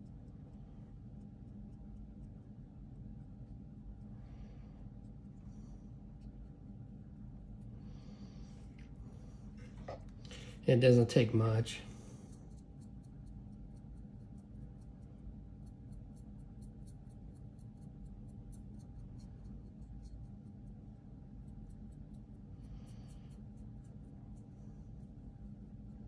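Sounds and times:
steady low hum: 0.0s - 26.0s
paintbrush scratching on plastic: 12.1s - 26.0s.

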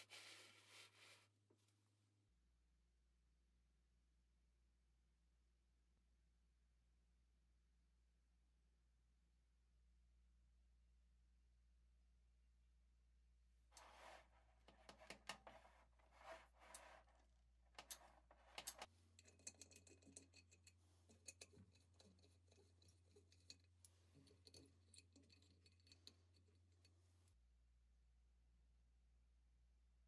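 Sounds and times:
gritty metal scraping: 13.8s - 20.6s
small metallic clicks: 17.8s - 27.0s.

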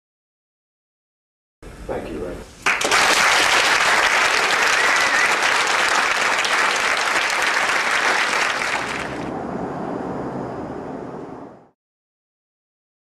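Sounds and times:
audience applauding: 2.6s - 9.3s.

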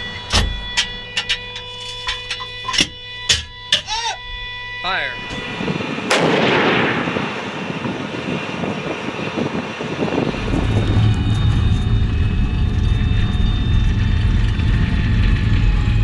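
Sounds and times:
tank engine rumbling: 0.0s - 16.0s
tank gun blast: 6.0s - 7.8s.

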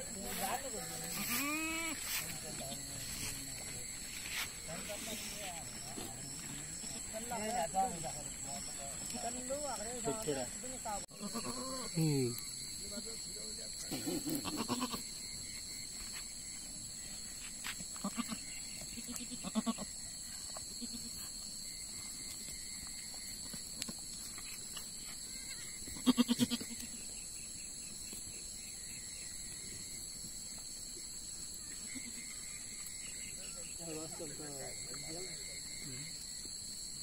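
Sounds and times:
goats bleating: 1.0s - 2.0s, 11.1s - 12.0s, 14.2s - 15.0s, 18.0s - 18.4s, 19.0s - 19.9s, 26.0s - 26.8s.

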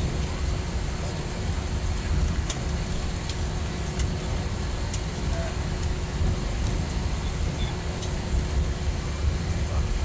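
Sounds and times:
jet engine rumble: 0.0s - 10.0s.

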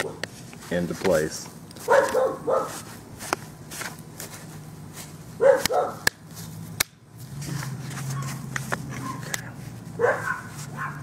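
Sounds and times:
dog barking: 1.9s - 2.8s, 5.4s - 6.1s, 8.1s - 9.3s, 10.0s - 11.0s.

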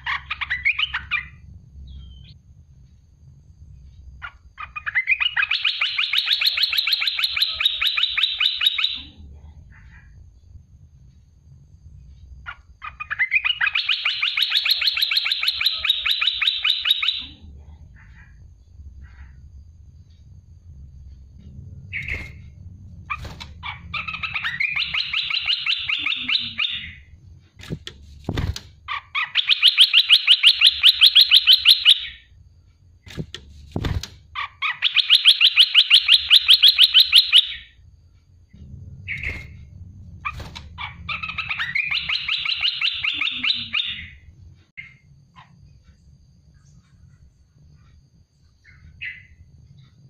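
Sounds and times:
bird singing fast repeated notes: 0.0s - 2.4s, 4.2s - 9.1s, 12.4s - 17.4s, 21.8s - 27.2s, 28.8s - 32.3s, 34.4s - 37.8s, 40.2s - 45.6s, 48.6s - 49.5s.

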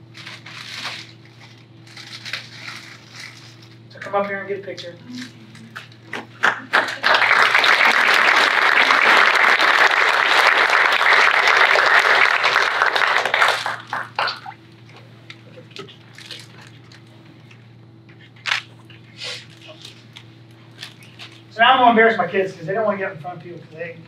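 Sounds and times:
audience applauding: 6.1s - 14.6s.

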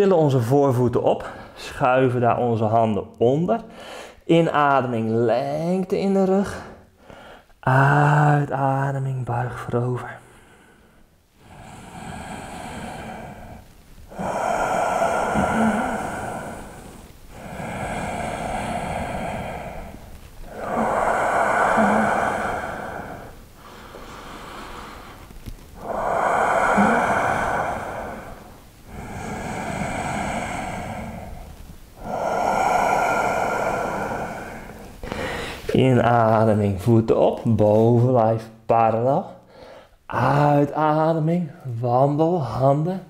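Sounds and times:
man breathing slowly and deeply: 3.7s - 4.2s, 6.5s - 7.6s, 10.2s - 35.8s, 39.4s - 40.0s.

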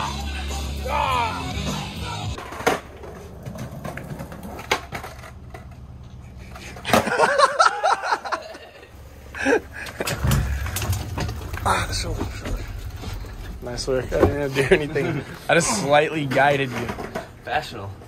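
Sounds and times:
skateboard wheels rolling on concrete: 0.0s - 18.0s
skateboard clacks: 2.4s - 7.3s.

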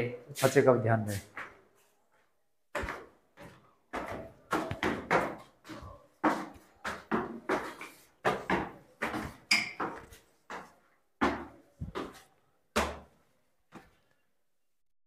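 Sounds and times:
footsteps on stone stairs: 2.7s - 14.1s.

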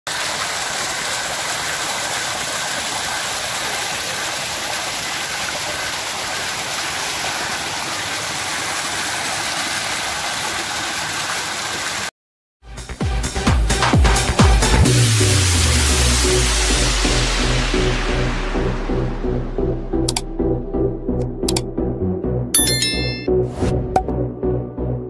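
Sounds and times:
water rushing over rocks: 0.1s - 12.1s.

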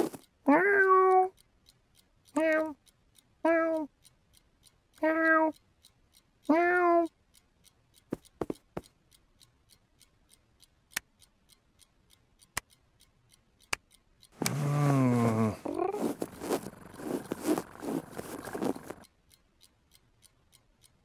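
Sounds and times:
cartoon cat meow: 0.5s - 1.3s, 2.4s - 2.8s, 3.5s - 3.9s, 5.0s - 5.6s, 6.5s - 7.1s
fast ticking: 7.4s - 21.0s
soft taps: 8.1s - 8.9s
low falling vocal sound: 14.4s - 16.1s.

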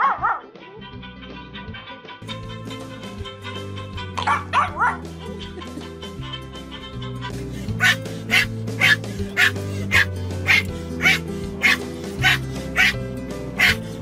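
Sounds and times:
puppy yapping: 0.0s - 0.4s, 4.2s - 5.0s, 7.8s - 13.0s, 13.6s - 13.8s
background music: 0.0s - 14.0s.

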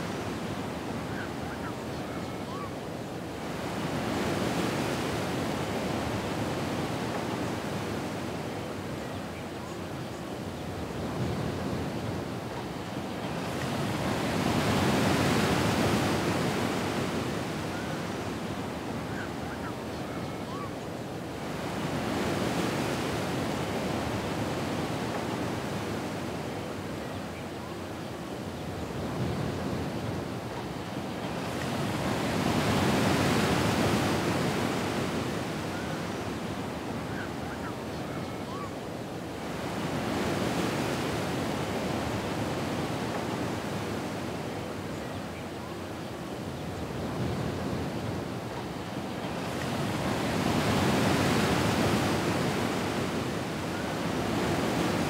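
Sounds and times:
ocean waves breaking: 46.8s - 55.0s.

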